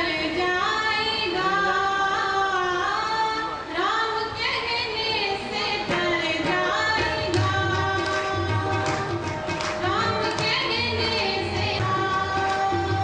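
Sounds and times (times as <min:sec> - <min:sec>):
drum rhythm: 0:07.2 - 0:13.0.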